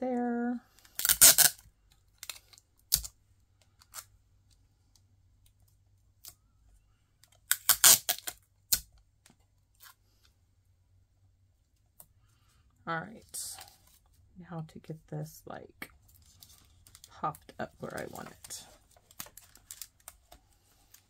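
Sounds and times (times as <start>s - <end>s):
tape pulled off a roll: 0.8s - 1.6s, 7.5s - 8.9s
tape tearing on cutter: 0.9s - 1.6s, 7.5s - 8.8s.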